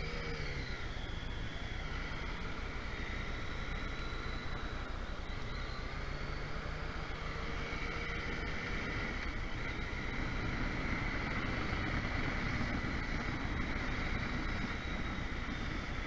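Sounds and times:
motorcycle engine running: 0.0 - 16.0
wind and road noise: 0.0 - 16.0.

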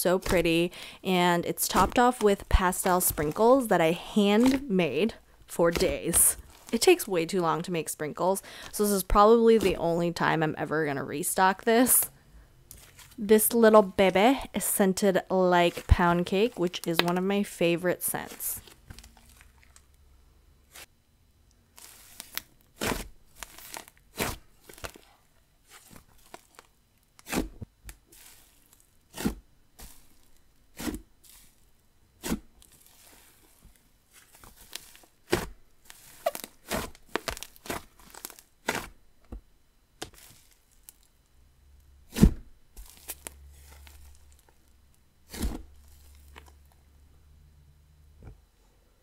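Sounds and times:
slime popping and crackling: 1.5 - 3.7, 4.3 - 4.7, 21.8 - 25.1, 34.2 - 38.9.

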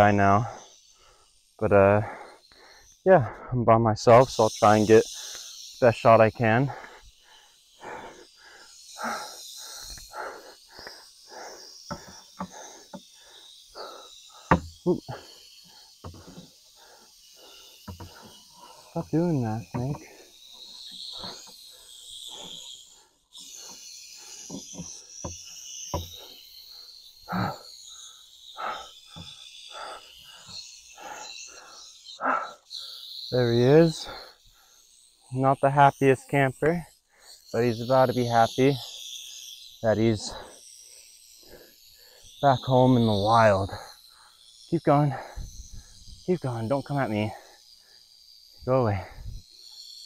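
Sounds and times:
rattlesnake rattling: 0.0 - 50.0
man panting hard: 1.9 - 3.6, 6.6 - 19.0, 28.6 - 32.6, 45.1 - 45.9.

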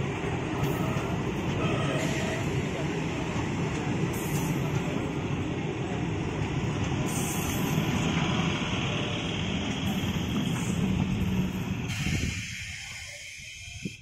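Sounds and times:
train wheels rumbling on rails: 0.0 - 14.0.

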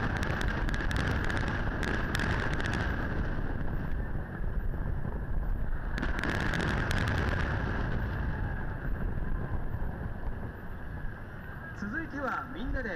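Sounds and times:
fireworks shell bursts rumbling: 0.0 - 4.0, 5.8 - 9.1
fireworks crackling pops: 0.0 - 11.2
wind buffeting microphone: 0.0 - 12.9.

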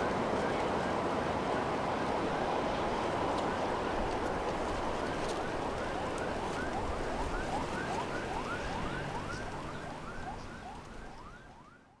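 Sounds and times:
outdoor ambience: 0.0 - 12.0
animals calling with siren-like chirps: 5.4 - 12.0.

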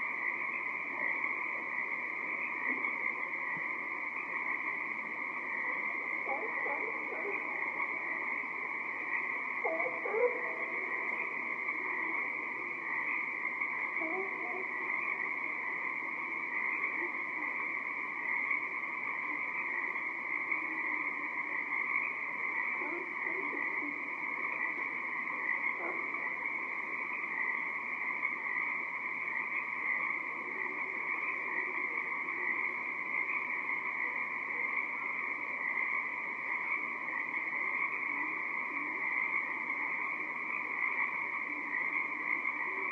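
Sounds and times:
chorus of tree frogs: 0.0 - 42.9
faint low frog calls: 0.0 - 42.9.

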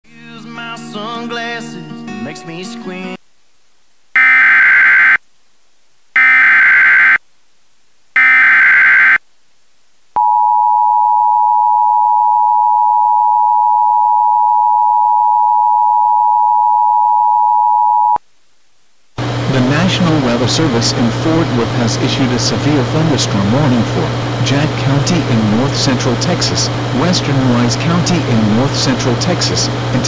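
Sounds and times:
data burst tones: 4.2 - 5.2, 6.2 - 7.2, 8.2 - 9.2.

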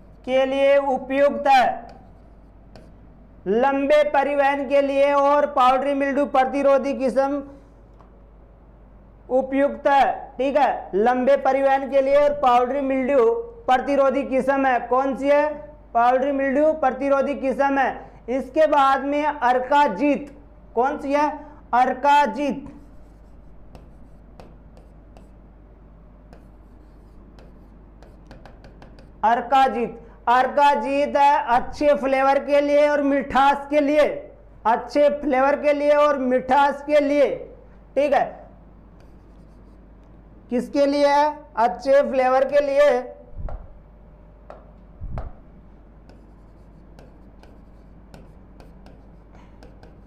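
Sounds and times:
low steady hum: 0.0 - 16.8, 20.0 - 32.0, 37.2 - 50.0
pen writing on a board: 1.8 - 3.0, 22.6 - 25.4, 26.3 - 29.2, 39.0 - 39.8, 46.1 - 50.0
dull low thumps: 45.0 - 45.5.

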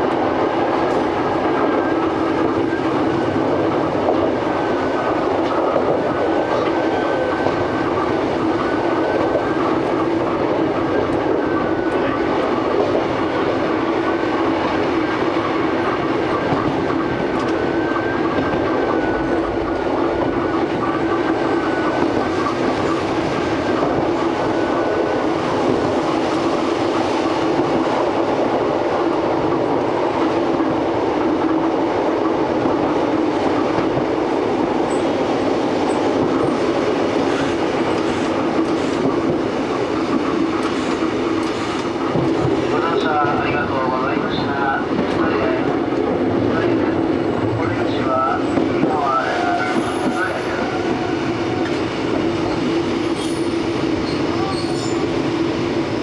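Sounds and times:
electric train rumble: 0.0 - 56.0.

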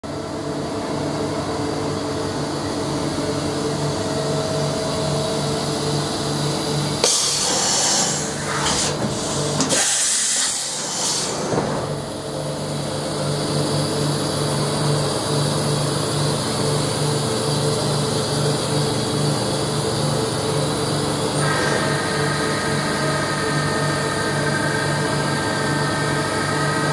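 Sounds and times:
machining center humming: 0.1 - 26.9
loud hiss: 7.0 - 11.5.

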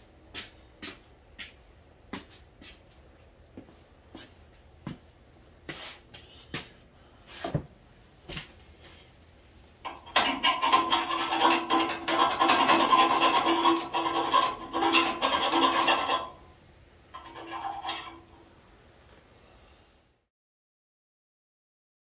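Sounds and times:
file scraping metal: 9.9 - 16.6, 17.2 - 18.5.

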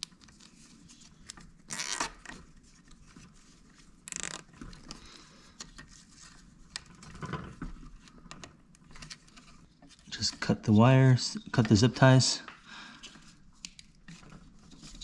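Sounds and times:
zip tie zipping rasps: 1.7 - 2.1.

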